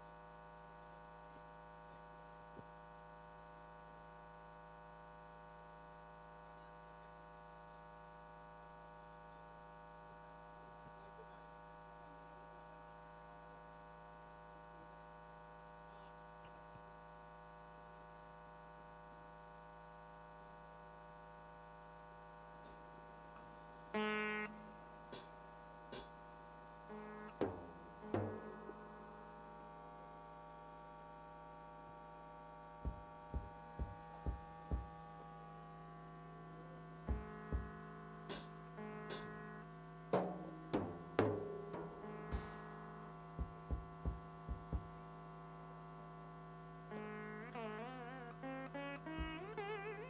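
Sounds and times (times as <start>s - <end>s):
faint mains hum: 0.0s - 50.0s
electronic keyboard note: 23.4s - 26.1s, 26.8s - 30.2s, 32.8s - 45.6s, 46.9s - 50.0s.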